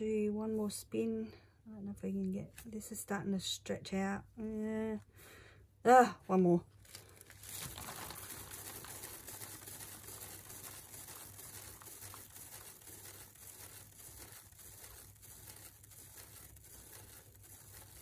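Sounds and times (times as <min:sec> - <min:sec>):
paint spattering on plastic: 0:06.9 - 0:18.0.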